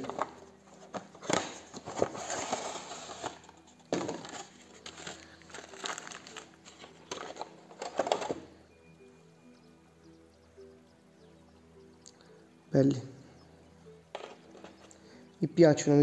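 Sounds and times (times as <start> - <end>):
cardboard box rustling: 0.0 - 8.3
plastic bag crinkling: 4.0 - 8.4.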